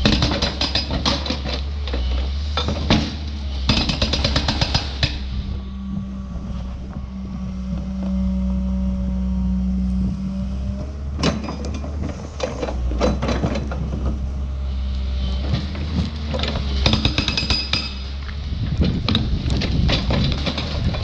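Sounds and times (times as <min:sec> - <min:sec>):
metallic clanks and knocks: 0:00.0 - 0:05.3, 0:11.2 - 0:14.3
diesel engine running: 0:00.0 - 0:21.0
hydraulic hum: 0:00.0 - 0:21.0.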